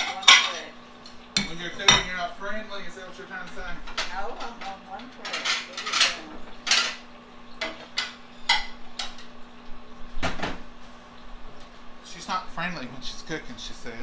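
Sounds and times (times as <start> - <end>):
dishes clinking and knocking: 0.0 - 0.7, 1.4 - 2.2, 3.5 - 9.3
low steady hum: 0.0 - 14.0.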